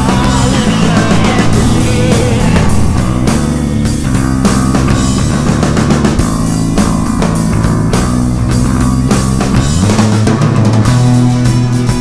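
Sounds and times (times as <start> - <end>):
rock music with guitar and drums: 0.0 - 12.0.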